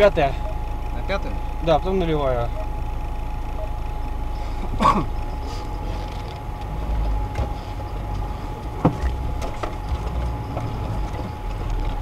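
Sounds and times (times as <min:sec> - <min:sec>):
off-road vehicle engine rumble: 0:00.0 - 0:12.0
vehicle body rattles: 0:04.5 - 0:12.0.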